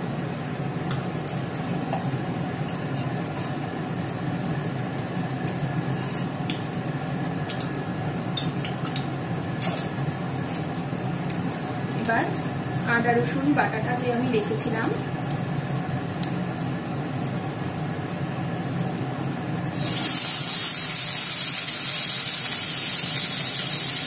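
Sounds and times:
oil crackling and popping: 19.8s - 24.0s.

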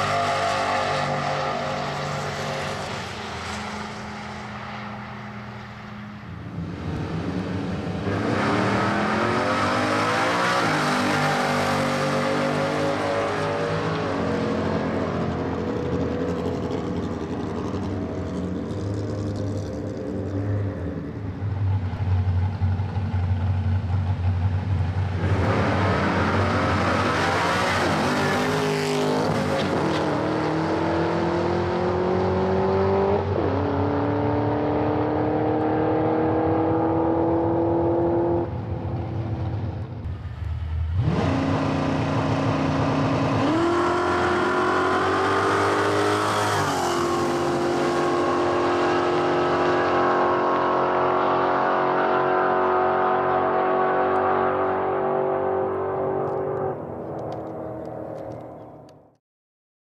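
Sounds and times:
car engines idling: 15.2s - 25.2s.

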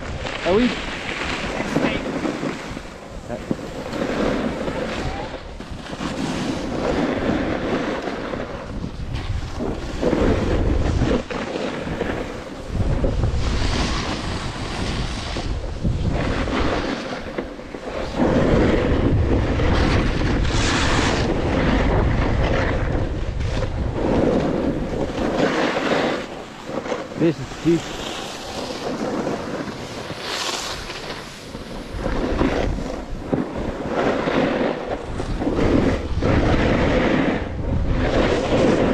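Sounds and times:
snowboard edge scraping snow: 0.0s - 38.9s
wind rushing over microphone: 0.0s - 38.9s.

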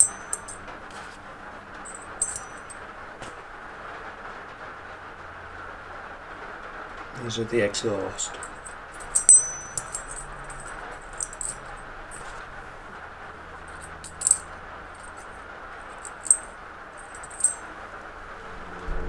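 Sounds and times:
light metallic clinks: 0.0s - 0.7s, 1.8s - 2.9s, 8.3s - 12.4s, 13.6s - 15.3s, 15.9s - 17.7s.

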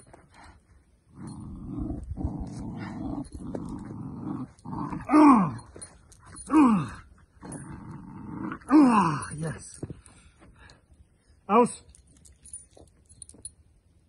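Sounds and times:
puppy growling: 1.1s - 5.6s, 6.8s - 9.2s.

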